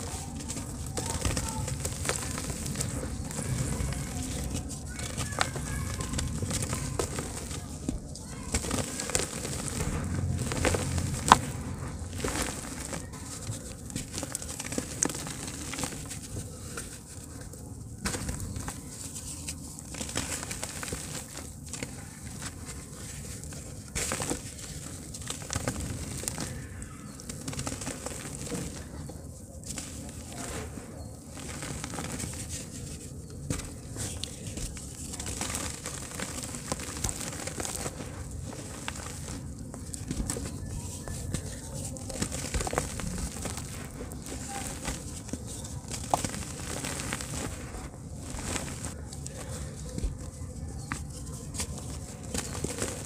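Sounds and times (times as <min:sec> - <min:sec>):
grit trickling onto wet heap: 0:00.0 - 0:16.4, 0:33.5 - 0:50.1
crumbs pattering onto soil: 0:00.0 - 0:53.0
dirt lump crunching: 0:00.0 - 0:53.0
hands crumbling dirt: 0:00.0 - 0:53.0.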